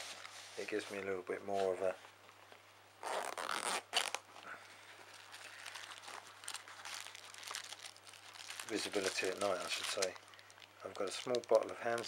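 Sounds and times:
fabric pouch rustling: 0:03.0 - 0:12.0
plastic bags crinkling: 0:03.2 - 0:12.0.

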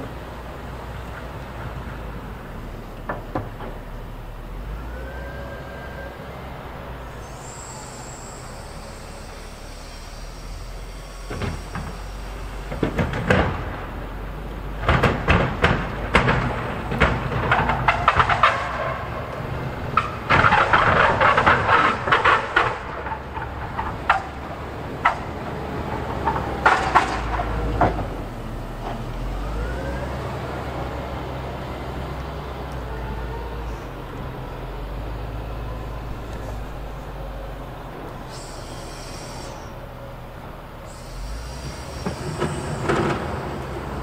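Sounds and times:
loader engine running: 0:00.0 - 0:44.0
snowplow scraping and clattering: 0:00.0 - 0:44.0
short rising whine: 0:04.0 - 0:13.0, 0:32.8 - 0:44.0.

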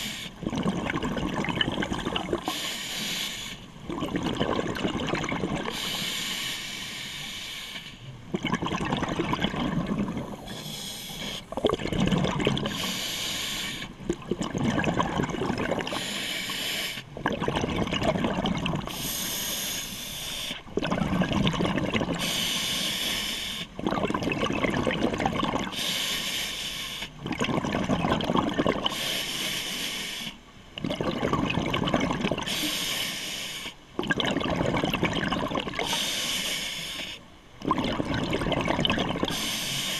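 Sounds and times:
bubbling exhale underwater: 0:00.0 - 0:02.6, 0:03.8 - 0:06.0, 0:08.3 - 0:13.0, 0:13.9 - 0:16.1, 0:17.1 - 0:19.0, 0:20.7 - 0:22.3, 0:23.8 - 0:25.8, 0:27.2 - 0:29.0, 0:30.8 - 0:32.7, 0:34.0 - 0:36.0, 0:37.6 - 0:39.5
regulator air hiss: 0:02.5 - 0:03.6, 0:05.8 - 0:08.0, 0:12.7 - 0:13.9, 0:15.9 - 0:17.0, 0:18.9 - 0:20.6, 0:22.2 - 0:23.7, 0:29.0 - 0:30.4, 0:32.5 - 0:33.8, 0:35.9 - 0:37.2, 0:39.3 - 0:39.9.

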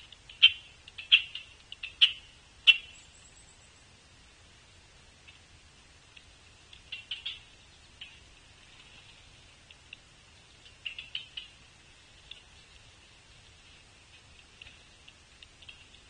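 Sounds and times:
small bird chirping: 0:00.3 - 0:03.9, 0:06.7 - 0:08.3, 0:10.4 - 0:12.8.

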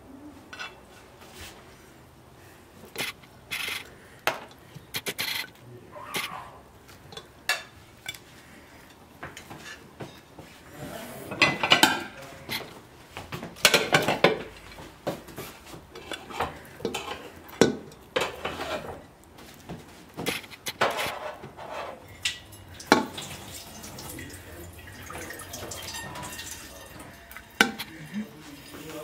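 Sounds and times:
plates and pot clinking: 0:00.5 - 0:01.1, 0:11.3 - 0:12.8, 0:13.5 - 0:19.1, 0:20.2 - 0:29.0.

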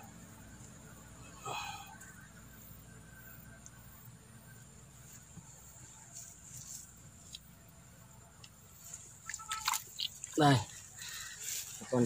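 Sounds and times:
grass rustling: 0:00.0 - 0:12.0.

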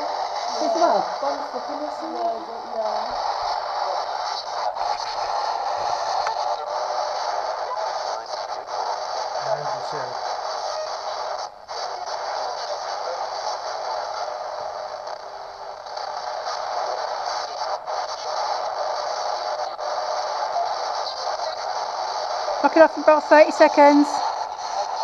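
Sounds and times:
static hiss: 0:00.0 - 0:25.0.

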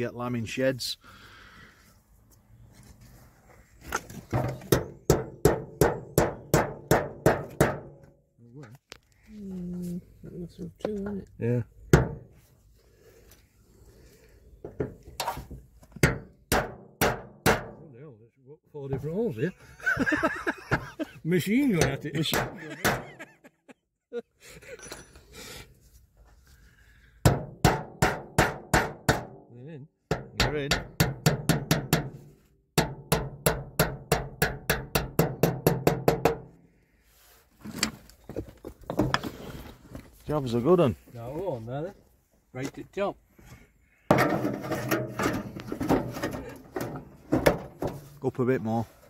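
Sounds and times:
hammer striking metal sheet: 0:04.4 - 0:08.0, 0:16.0 - 0:17.8, 0:21.8 - 0:23.0, 0:27.3 - 0:29.4, 0:30.1 - 0:32.2, 0:32.8 - 0:36.5
hammer blows on metal sheeting: 0:27.2 - 0:29.4.

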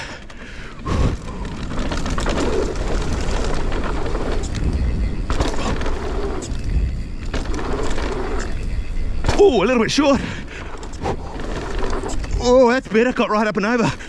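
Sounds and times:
bike rattling: 0:00.0 - 0:14.0
tyres rolling over dirt: 0:00.0 - 0:14.0
wind buffeting microphone: 0:00.8 - 0:12.7.

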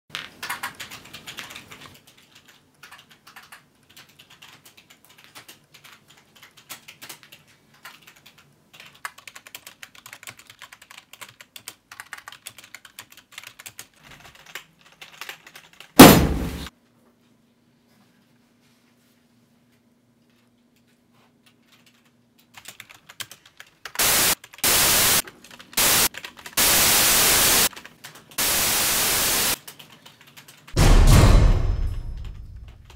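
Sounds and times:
sudden loud burst: 0:16.0 - 0:16.7, 0:30.8 - 0:32.7.

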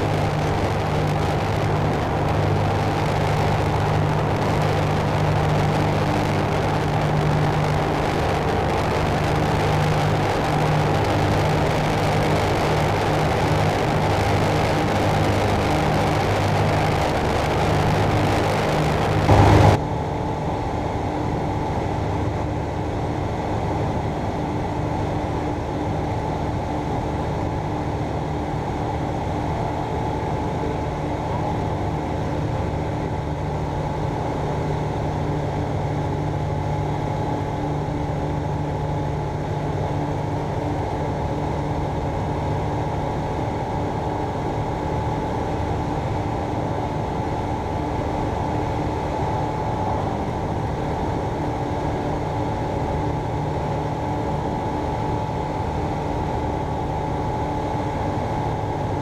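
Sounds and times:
rushing air noise: 0:00.0 - 0:19.8
aircraft engine and propeller: 0:00.0 - 0:59.0.

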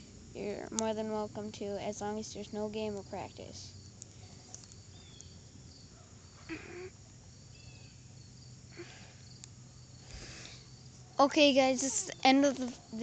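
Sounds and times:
crickets droning: 0:00.0 - 0:13.0.

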